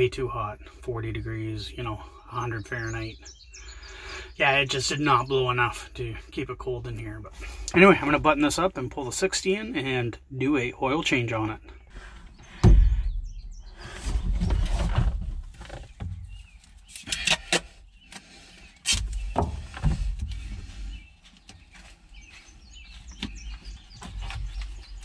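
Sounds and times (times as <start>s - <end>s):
low handling rumbles: 10.7s - 16.8s.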